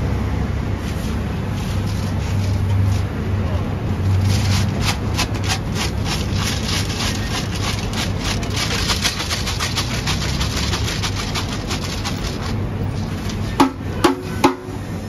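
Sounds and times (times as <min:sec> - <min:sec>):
roasting machine humming: 0:00.0 - 0:15.0
seeds rattling against metal: 0:04.2 - 0:13.7.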